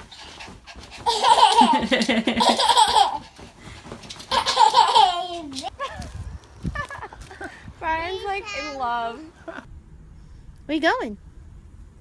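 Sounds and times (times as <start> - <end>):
toddler girl laughing: 1.0 - 3.3, 4.3 - 6.1.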